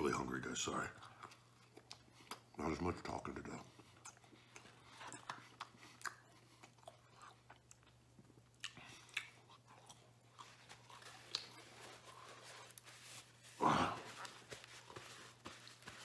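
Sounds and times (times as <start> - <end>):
chewing with wet mouth clicks: 0.9 - 2.6, 3.8 - 12.0.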